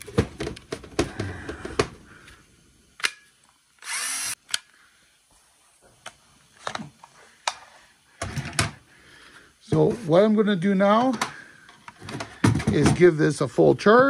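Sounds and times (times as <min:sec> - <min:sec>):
cordless drill motor spinning: 0:03.8 - 0:04.6
battery clicking onto drill: 0:03.8 - 0:04.7.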